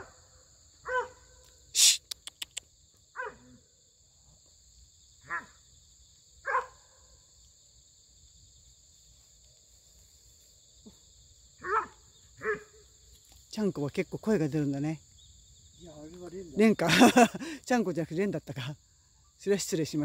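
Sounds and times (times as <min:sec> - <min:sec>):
high insect drone: 0:00.0 - 0:20.0
dog yelping: 0:00.9 - 0:01.2, 0:11.6 - 0:12.7.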